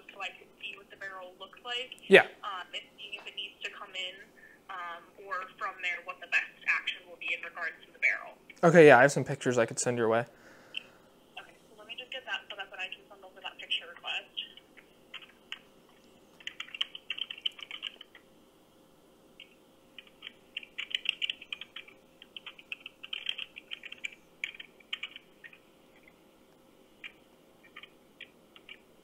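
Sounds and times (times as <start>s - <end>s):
keyboard typing through phone speaker: 14.0s - 15.7s, 16.4s - 18.2s, 19.4s - 26.1s, 27.0s - 28.8s.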